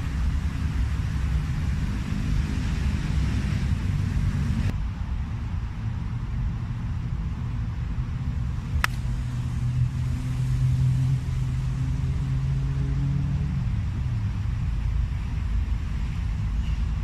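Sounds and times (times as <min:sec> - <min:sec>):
low engine drone: 0:00.0 - 0:17.0
golf club striking ball: 0:08.8 - 0:09.2.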